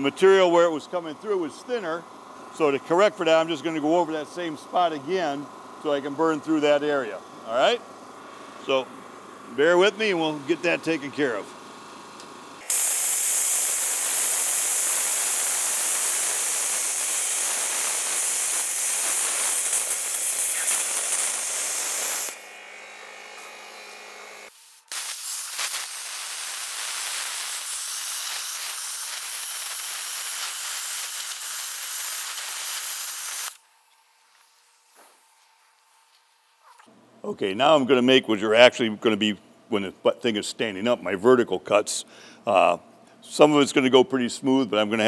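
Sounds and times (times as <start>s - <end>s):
plasma cutter arc hissing: 12.6s - 33.6s.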